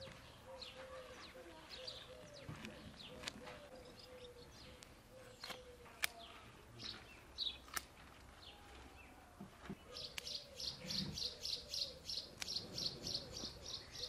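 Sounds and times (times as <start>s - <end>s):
birds chirping: 0.0s - 14.0s
scissors snipping stalks: 2.6s - 3.6s, 5.4s - 6.3s.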